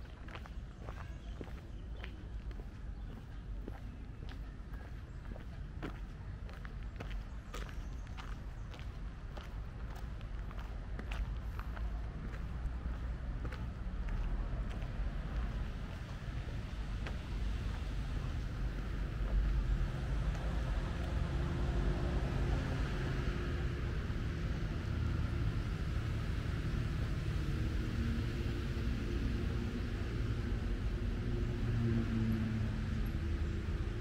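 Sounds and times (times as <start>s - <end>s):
low rumble of road traffic: 0.0s - 34.0s
vehicle engine passing: 11.4s - 34.0s.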